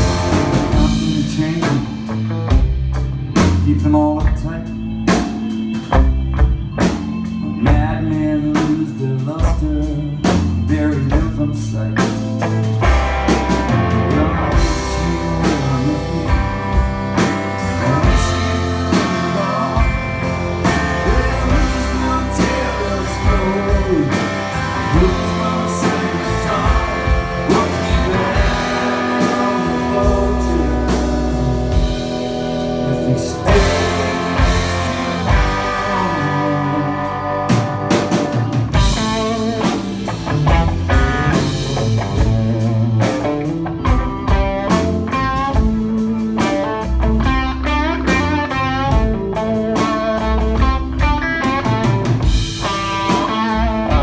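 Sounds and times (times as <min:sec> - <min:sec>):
person singing: 0:00.0 - 0:02.3, 0:03.5 - 0:05.9, 0:06.8 - 0:12.5, 0:13.5 - 0:38.2
blues rock band playing: 0:00.0 - 0:54.0
electric guitar lead: 0:00.0 - 0:54.0.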